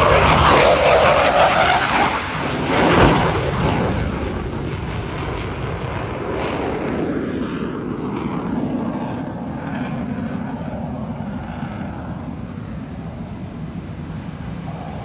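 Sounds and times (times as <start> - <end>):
jet flying low overhead: 0.0 - 15.0.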